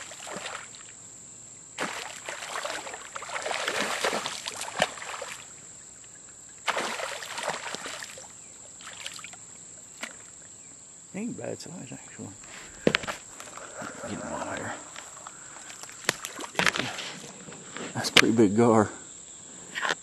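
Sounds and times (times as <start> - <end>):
fish splashing in water: 0.0 - 1.0, 1.8 - 5.6, 6.6 - 10.5, 15.2 - 17.4.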